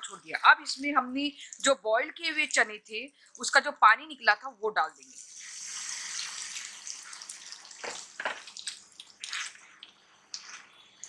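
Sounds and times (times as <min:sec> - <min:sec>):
water poured into a pan: 0:05.2 - 0:09.6.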